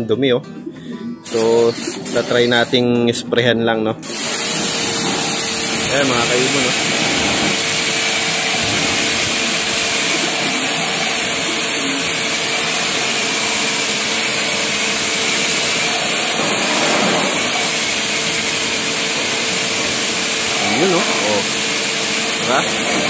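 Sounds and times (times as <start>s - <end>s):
pressure washer pump hum: 1.2s - 2.9s, 4.0s - 23.0s
water jet hissing on plastic: 1.3s - 2.8s, 4.0s - 23.0s.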